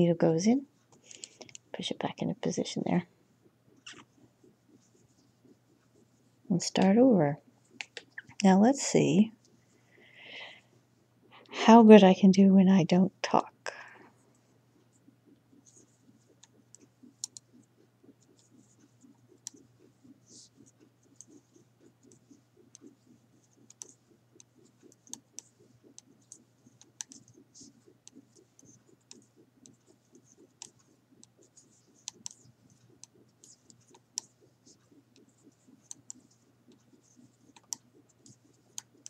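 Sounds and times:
knitting needles clicking: 3.7 - 4.1, 7.8 - 8.6, 16.3 - 17.5, 23.6 - 39.0.

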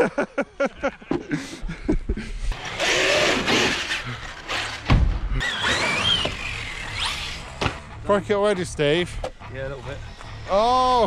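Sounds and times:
electric motor whining: 2.5 - 7.8
loud thump: 4.8 - 5.4.

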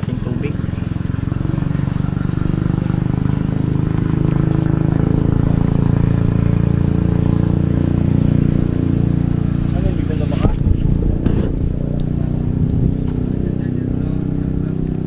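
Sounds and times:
insects buzzing: 0.0 - 15.0
low motor drone: 0.0 - 15.0.

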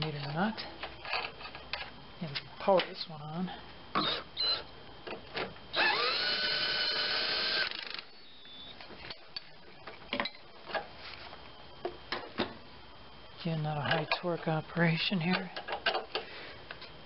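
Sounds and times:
power drill whining: 4.0 - 4.7, 5.7 - 8.6.

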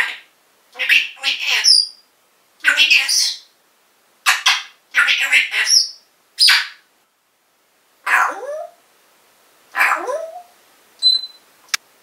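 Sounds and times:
parrot squawks and chatter: 0.0 - 2.0, 2.6 - 3.5, 4.2 - 6.8, 8.0 - 8.8, 9.7 - 11.4
parrot rising whistle: 11.0 - 11.4.

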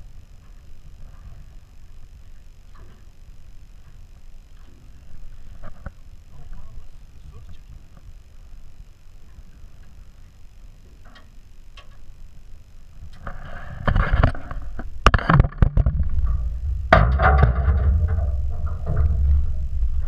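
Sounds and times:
sharp knocks: 16.9 - 19.3.

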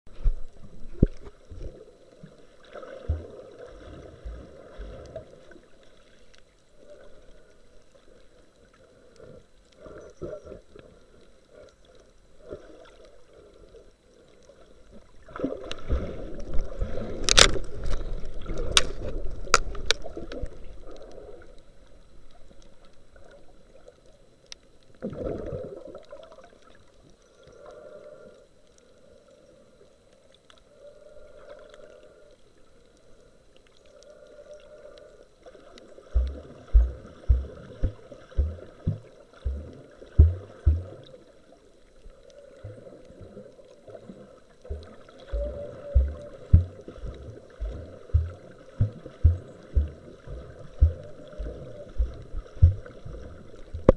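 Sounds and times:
muffled underwater water noise: 0.1 - 53.9
water sloshing and bubbling: 0.1 - 53.9
low thumps: 36.2 - 41.1, 44.7 - 53.9.

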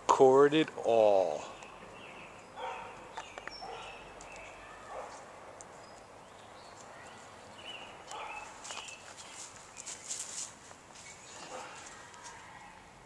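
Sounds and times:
footsteps on dirt: 2.6 - 12.5.

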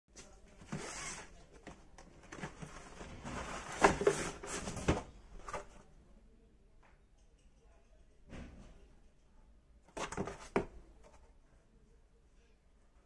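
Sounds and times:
cardboard sleeve rustling and scraping: 0.2 - 5.8, 10.0 - 11.2.

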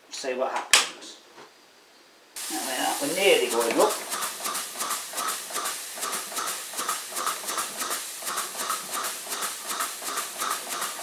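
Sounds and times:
small steam engine chuffing: 3.4 - 11.0.

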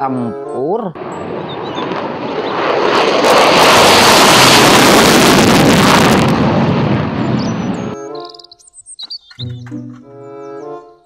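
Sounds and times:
fighter jet taking off: 1.0 - 8.0.

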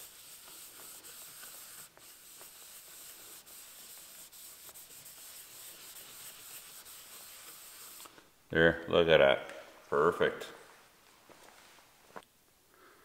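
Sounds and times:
cloth rubbing on wooden board: 0.0 - 8.1.

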